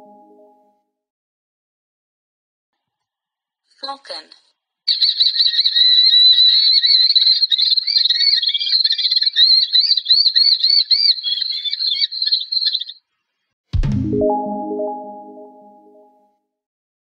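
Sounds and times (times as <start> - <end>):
bird of prey calling: 4.9 - 13.0.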